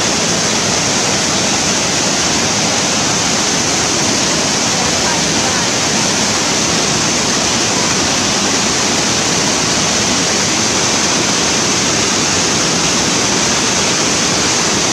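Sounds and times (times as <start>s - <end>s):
waterfall rushing over rocks: 0.0s - 14.9s.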